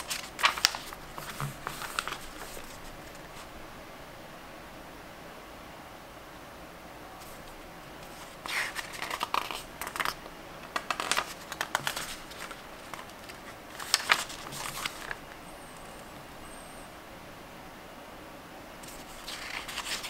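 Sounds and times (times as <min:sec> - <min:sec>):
book pages turning: 0:00.0 - 0:03.5, 0:07.2 - 0:15.9, 0:18.8 - 0:20.0.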